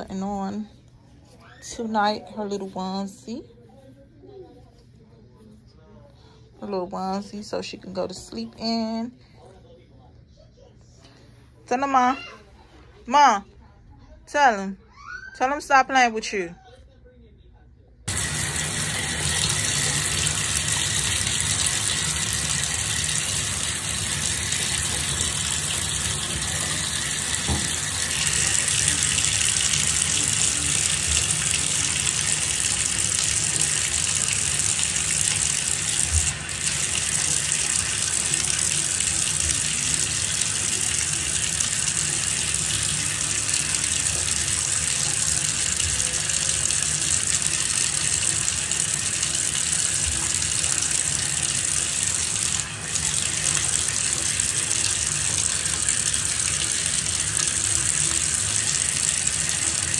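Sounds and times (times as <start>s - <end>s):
water running into bathtub: 18.1s - 59.9s.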